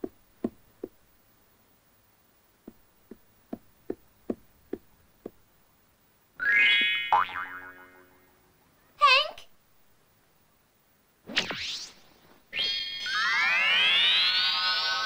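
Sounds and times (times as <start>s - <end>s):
cartoon footstep taps: 0.0s - 1.0s, 2.6s - 5.4s.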